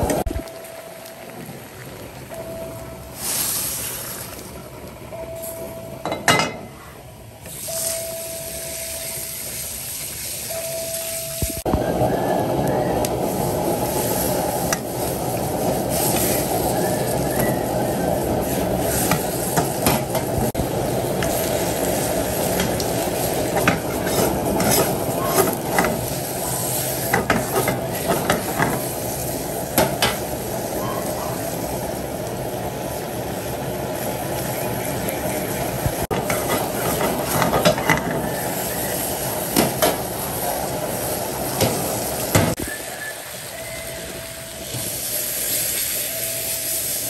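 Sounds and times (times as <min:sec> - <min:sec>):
meat sizzling in a pan: 0:11.8 - 0:34.2, 0:36.0 - 0:47.0.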